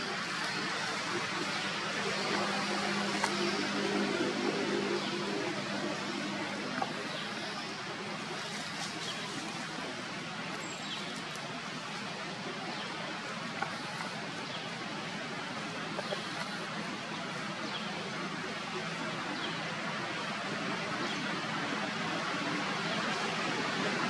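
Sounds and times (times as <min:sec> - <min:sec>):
outdoor background hiss: 0:00.0 - 0:24.0.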